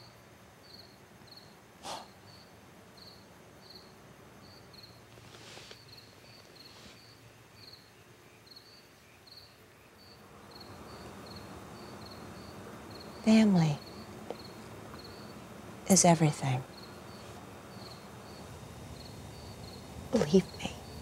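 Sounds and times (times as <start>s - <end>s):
crickets chirping: 0.0s - 21.0s
soft noisy sounds: 0.0s - 21.0s
sharp hiss-like sound: 1.8s - 2.2s, 5.1s - 7.2s.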